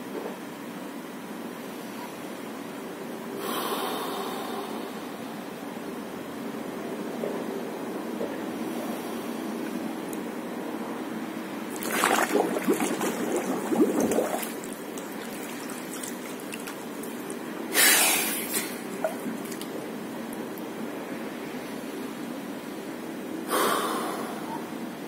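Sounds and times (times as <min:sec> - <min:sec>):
water sloshing and dripping: 0:11.6 - 0:20.4
water splashing: 0:11.7 - 0:20.0.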